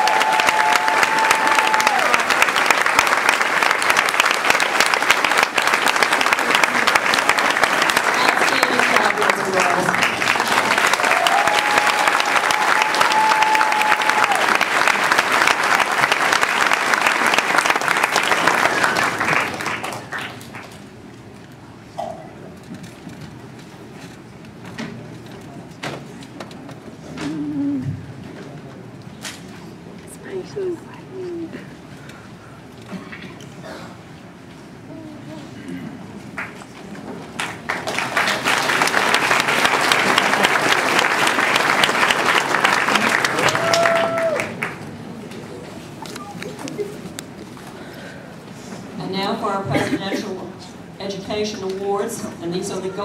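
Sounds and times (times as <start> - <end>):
audience applauding: 0.0 - 20.9, 36.3 - 47.4.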